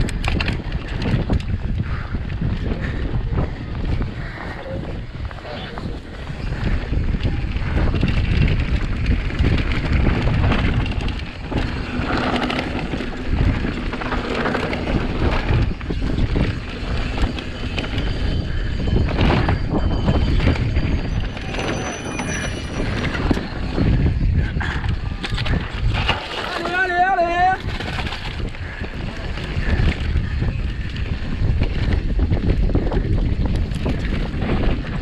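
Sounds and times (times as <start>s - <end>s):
wind and tyre noise: 0.0s - 35.0s
bike knocks and rattles: 5.3s - 20.4s, 23.0s - 35.0s.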